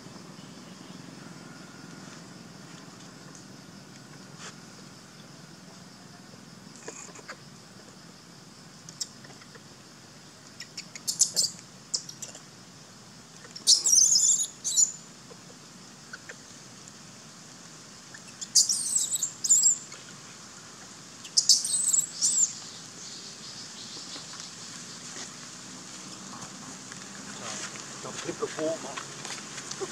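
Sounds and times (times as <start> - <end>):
bird chirping: 10.5 - 12.3, 13.4 - 15.1, 18.1 - 19.9, 21.2 - 24.4.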